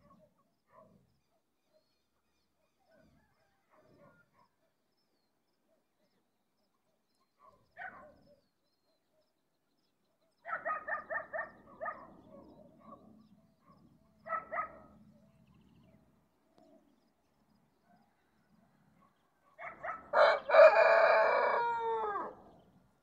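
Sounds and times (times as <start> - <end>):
dog barking: 0.0 - 1.0, 2.9 - 4.8, 7.3 - 8.4, 10.4 - 15.0, 19.0 - 21.2.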